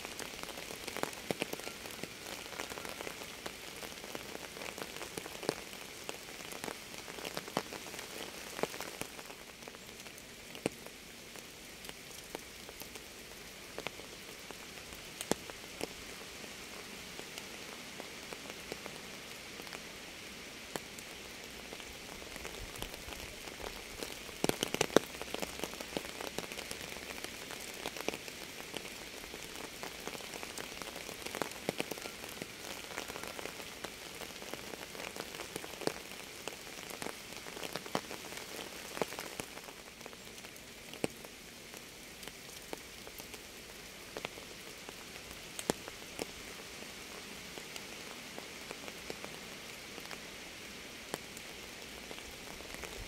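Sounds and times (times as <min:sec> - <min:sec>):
rain hissing: 0:00.0 - 0:53.0
heavier raindrops landing: 0:21.8 - 0:46.4.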